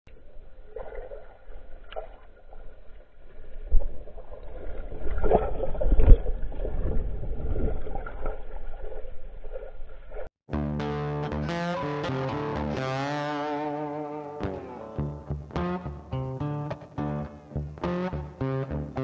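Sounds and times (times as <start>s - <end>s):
muffled water churning: 0.1s - 10.3s
guitar music: 10.5s - 19.0s.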